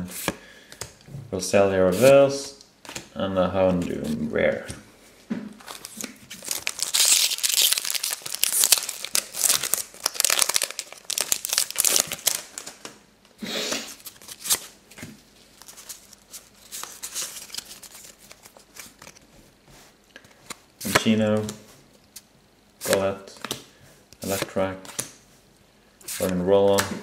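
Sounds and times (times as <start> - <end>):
cards rustling: 5.6 - 12.9, 13.9 - 19.3
foil pack tearing and crinkling: 5.7 - 12.8.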